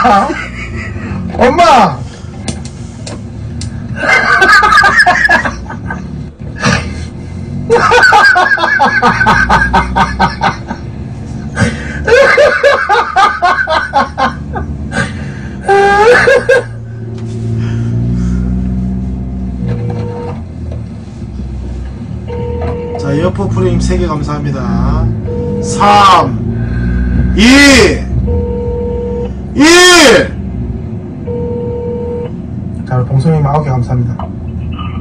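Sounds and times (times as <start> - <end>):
person laughing hard: 4.0 - 7.0, 7.7 - 10.8, 11.6 - 16.8.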